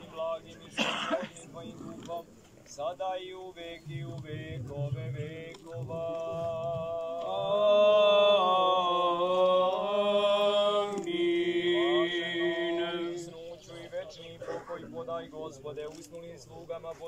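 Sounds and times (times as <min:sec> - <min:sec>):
unaccompanied voices chanting: 0:00.0 - 0:17.0.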